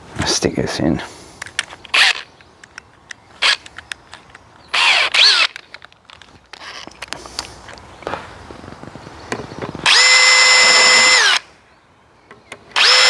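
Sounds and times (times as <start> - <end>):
short drill bursts: 4.8 - 5.5, 9.8 - 11.4, 12.8 - 13.0
drill chuck ratcheting clicks: 9.9 - 11.4, 12.8 - 13.0.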